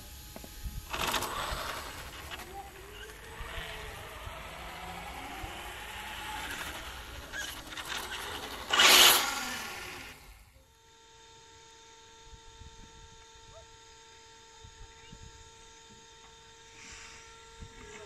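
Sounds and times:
quiet steady hum: 0.0 - 18.0
rc truck motor whine: 0.0 - 18.0
tyres rattling on grit: 0.9 - 10.4.

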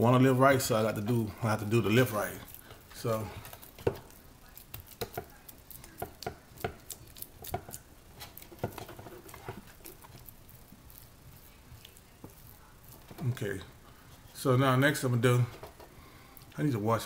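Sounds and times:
hands kneading raw meat: 0.0 - 17.0.

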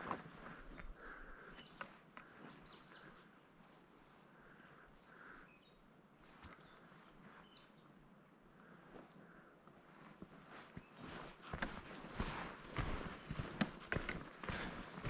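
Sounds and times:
soft footstep clicks: 0.0 - 3.7, 9.8 - 15.0
faint bird chirps: 0.5 - 9.5.

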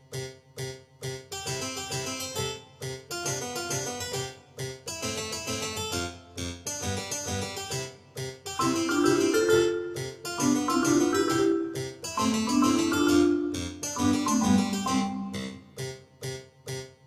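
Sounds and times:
keyboard music: 8.6 - 15.8.

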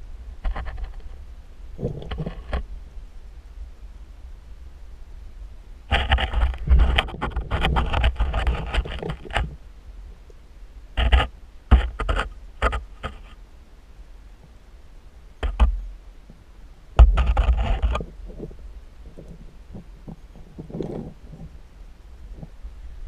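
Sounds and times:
underwater camera housing scraping: 0.4 - 1.1, 1.8 - 2.7, 5.9 - 9.6, 11.0 - 13.4, 15.4 - 15.8, 17.0 - 21.6.

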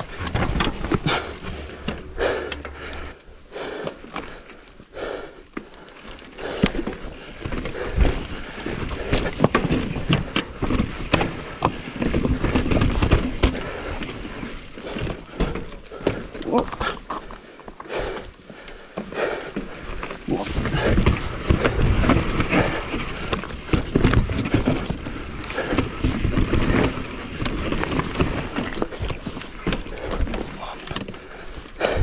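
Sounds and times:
bike tyres rolling: 0.0 - 32.0
bike clattering on rocks: 6.6 - 17.2, 20.4 - 31.2.

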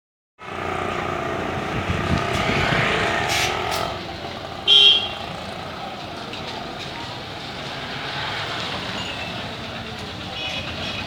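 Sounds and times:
vehicle passing by: 0.4 - 4.6, 5.2 - 9.8
street traffic: 0.4 - 11.0.

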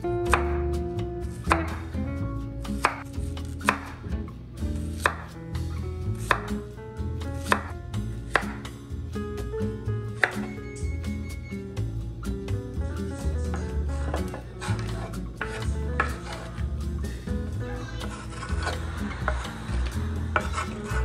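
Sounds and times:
knife slicing zucchini: 1.2 - 1.8, 2.7 - 4.0, 4.7 - 5.4, 6.1 - 6.7, 7.4 - 8.7, 14.0 - 16.6.

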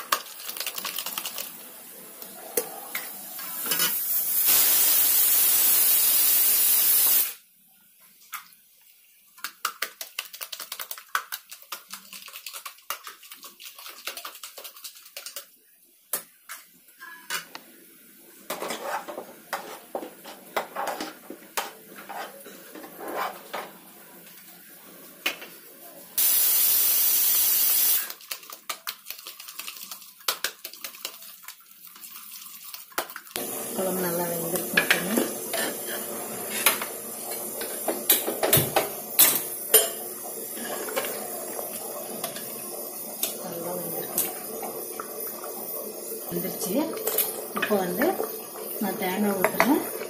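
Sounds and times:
loud steady hiss: 3.6 - 7.4, 26.2 - 28.0
metal utensils scraping cooking pot: 18.5 - 21.2, 22.0 - 23.7, 34.8 - 36.8.

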